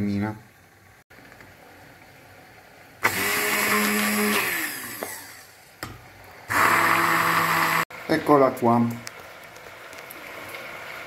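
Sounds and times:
stick blender whirring: 3.0 - 5.9, 6.5 - 7.9.

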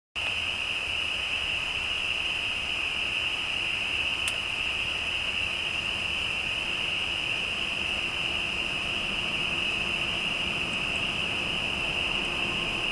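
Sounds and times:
frogs calling: 0.7 - 12.9
sharp click: 4.2 - 4.4.

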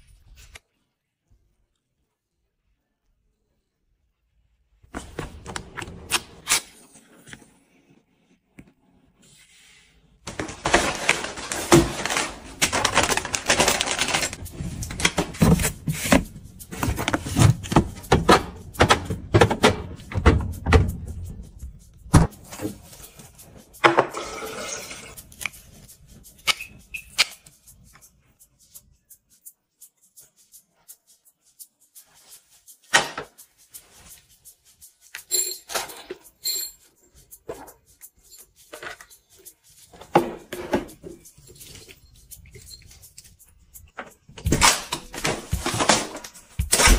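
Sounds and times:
plastic boxes knocking and clicking: 10.3 - 21.1.

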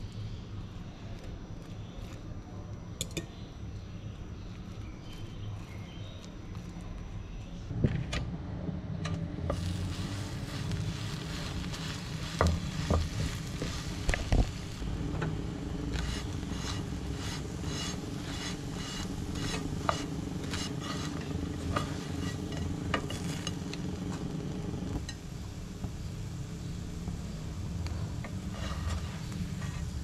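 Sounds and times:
bread sizzling in a pan: 9.4 - 30.0.

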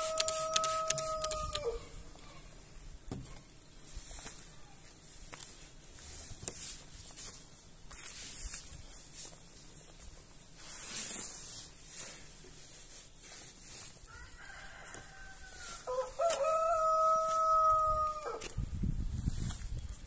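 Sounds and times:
rooster crowing: 0.0 - 2.0, 14.1 - 18.6.

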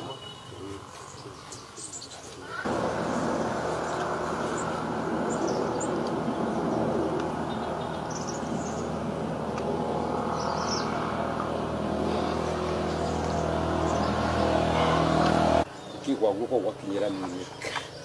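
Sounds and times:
bird chirps: 0.0 - 9.0, 10.2 - 11.6
low hum and rumble: 2.7 - 15.7.

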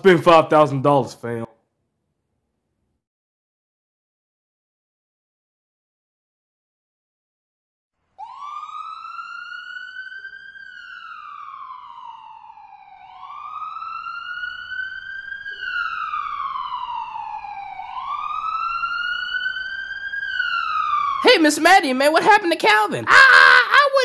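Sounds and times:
ambulance siren wailing: 8.2 - 24.0.

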